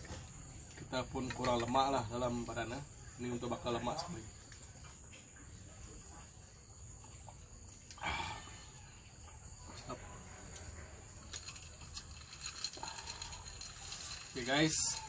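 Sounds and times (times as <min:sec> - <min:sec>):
high-pitched insect chorus: 0:00.1 - 0:15.0
loud breathy rasp: 0:12.7 - 0:14.4.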